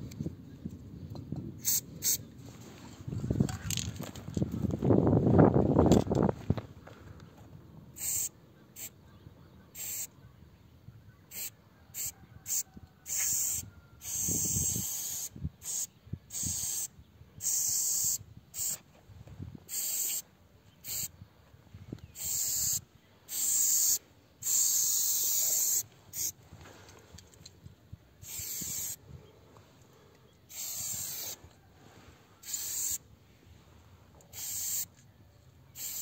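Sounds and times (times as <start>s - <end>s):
spray paint can hissing: 1.6s - 2.2s, 8.0s - 8.9s, 9.8s - 10.1s, 11.3s - 18.8s, 19.7s - 20.2s, 20.8s - 21.1s, 22.2s - 26.4s, 28.2s - 29.0s, 30.5s - 31.4s, 32.4s - 33.0s, 34.3s - 34.9s, 35.8s - 36.0s.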